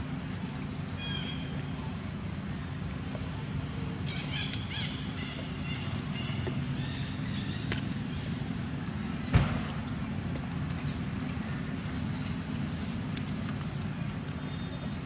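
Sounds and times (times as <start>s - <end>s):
steady low rumble: 0.0s - 15.0s
thump: 9.3s - 9.7s.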